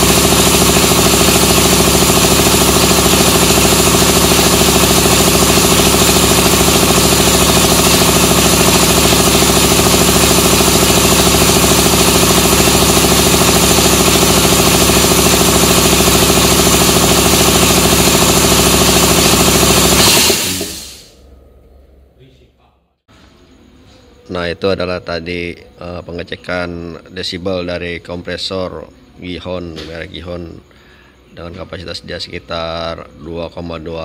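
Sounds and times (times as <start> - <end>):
air compressor running: 0.0 - 21.3.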